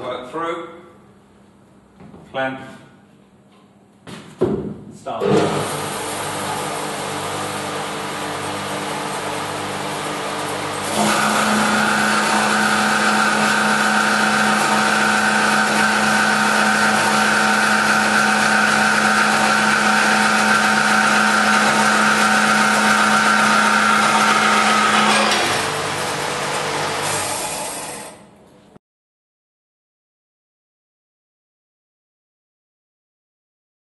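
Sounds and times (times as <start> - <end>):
bandsaw cutting metal: 5.2 - 28.2.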